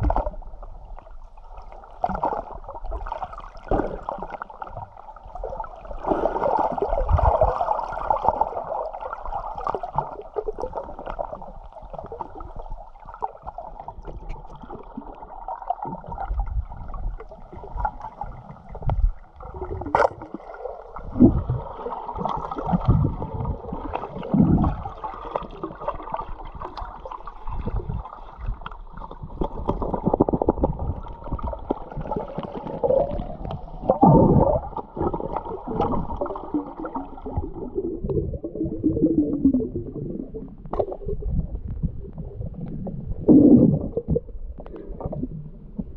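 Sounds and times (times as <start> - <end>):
underwater sloshing and gurgling: 0.0 - 45.9.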